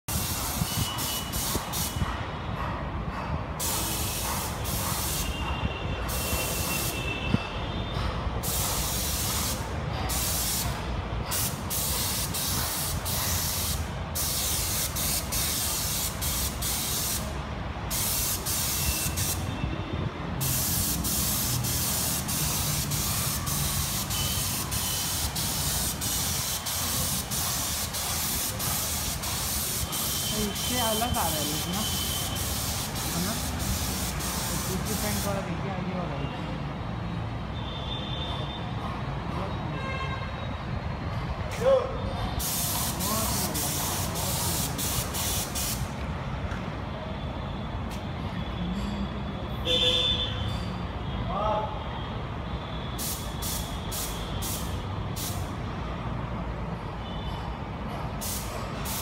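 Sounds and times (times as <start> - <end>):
paint spray gun hissing: 0.1 - 2.0, 3.6 - 5.4, 8.4 - 17.3, 17.9 - 19.4, 20.4 - 35.4, 42.4 - 45.9, 53.0 - 55.5, 58.2 - 59.0.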